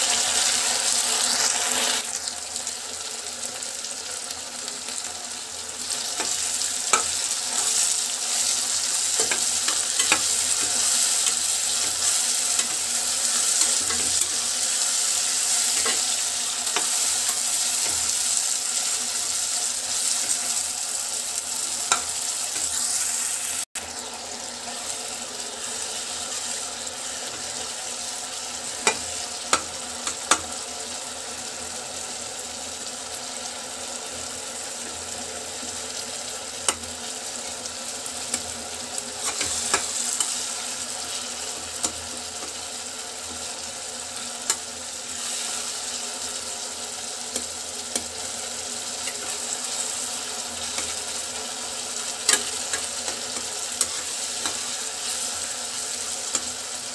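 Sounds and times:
vegetables sizzling in oil: 0:00.0 - 0:56.9.

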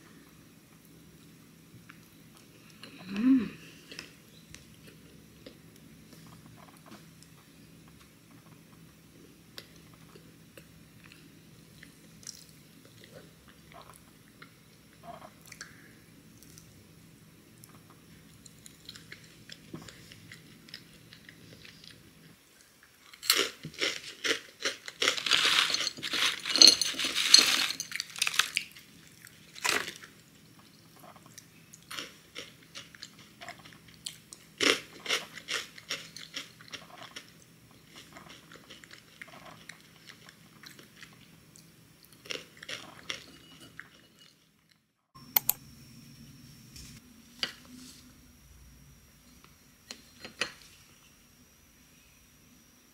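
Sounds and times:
crunchy granola chewing: 0:23.1 - 0:30.2, 0:30.9 - 0:43.9.

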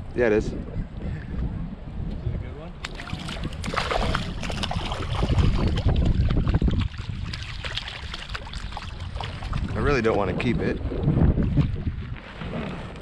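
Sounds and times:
wind rumbling on microphone: 0:00.0 - 0:13.0
fish splashing at water surface: 0:02.8 - 0:09.8.

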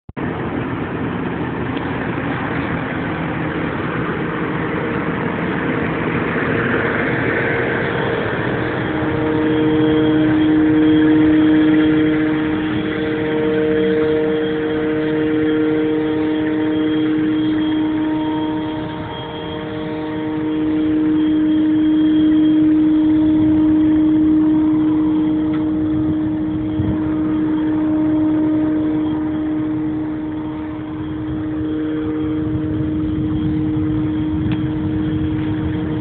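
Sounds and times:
steady whine: 0:00.2 - 0:36.0
tractor diesel engine running: 0:00.2 - 0:36.0.

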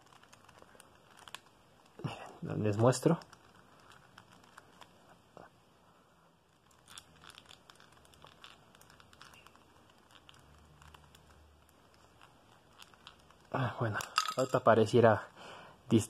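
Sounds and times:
small plastic clicks and scratches: 0:06.6 - 0:13.5.

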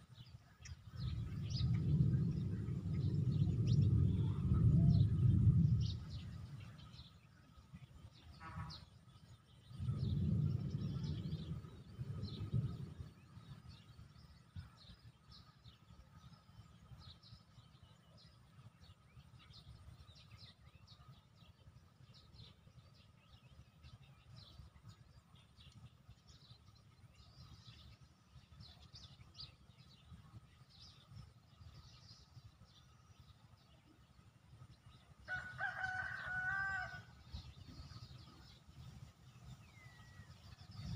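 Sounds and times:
low background rumble: 0:00.0 - 0:40.9
small birds chirping: 0:00.0 - 0:40.9
louder low rumble: 0:00.8 - 0:07.8, 0:09.6 - 0:14.6.

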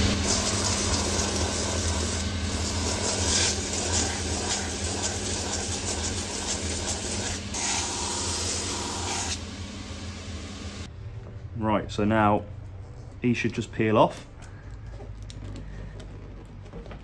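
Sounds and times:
sanding wheel grinding hiss: 0:00.0 - 0:10.8.

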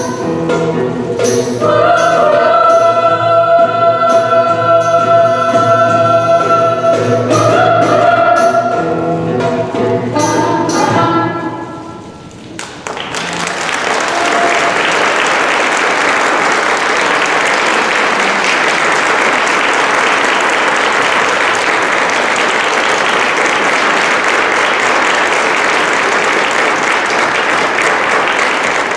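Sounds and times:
audience applause: 0:12.4 - 0:28.9.

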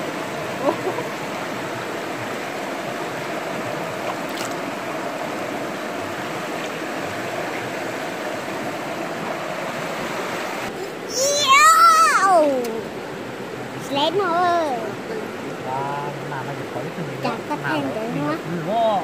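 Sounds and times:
stream running over rocks: 0:00.0 - 0:19.0.

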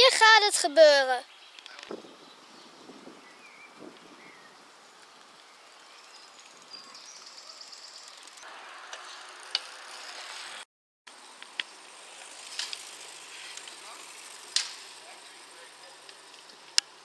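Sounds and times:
faint open-air ambience: 0:00.0 - 0:17.0
bicycle freewheel ticking: 0:04.6 - 0:10.4, 0:11.4 - 0:17.0.

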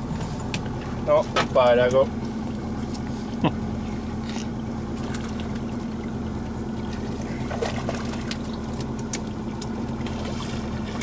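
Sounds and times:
outboard motor idling: 0:00.0 - 0:11.0
fish splashing: 0:04.1 - 0:11.0.

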